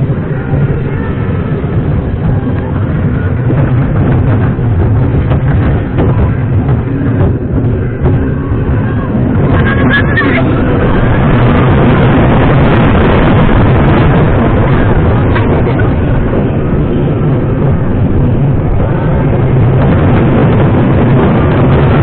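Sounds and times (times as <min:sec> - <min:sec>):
faint wavering voices: 0:00.0 - 0:12.9
roller coaster rumbling on track: 0:00.0 - 0:22.0
wind buffeting microphone: 0:00.0 - 0:22.0.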